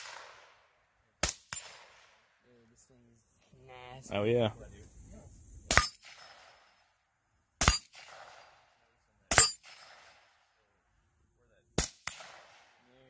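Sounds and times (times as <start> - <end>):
gunshots with ringing tail: 0.0 - 2.2, 5.7 - 6.7, 7.6 - 10.5, 11.8 - 12.9.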